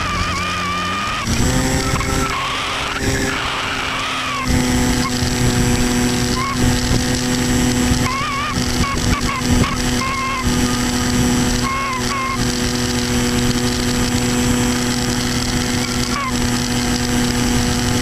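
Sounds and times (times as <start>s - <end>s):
electric motor and propeller drone: 0.0s - 18.0s
wind noise on microphone: 4.4s - 18.0s.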